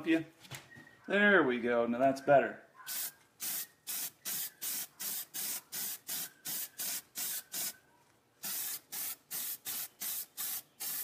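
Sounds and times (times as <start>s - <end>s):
spray-paint can bursts: 2.9s - 7.8s, 8.4s - 11.0s.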